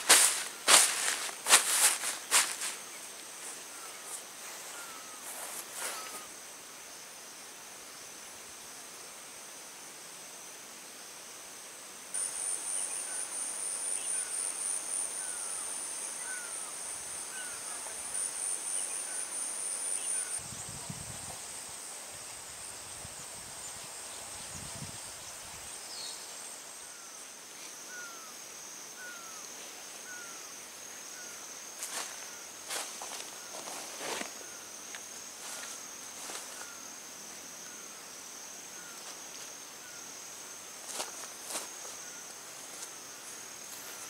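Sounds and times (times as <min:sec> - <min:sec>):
rustles: 0:00.0 - 0:06.6, 0:29.4 - 0:44.0
high-pitched insect chorus: 0:00.0 - 0:44.0.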